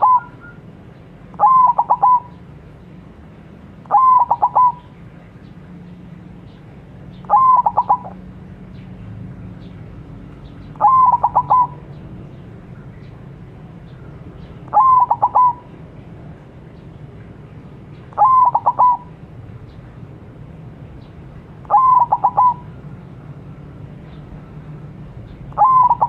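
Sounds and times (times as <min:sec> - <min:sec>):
dove cooing song: 0:00.0 - 0:00.7, 0:01.3 - 0:02.6, 0:03.8 - 0:05.0, 0:07.2 - 0:08.3, 0:10.4 - 0:12.1, 0:13.9 - 0:15.9, 0:18.1 - 0:19.8, 0:21.6 - 0:22.9, 0:25.2 - 0:26.0.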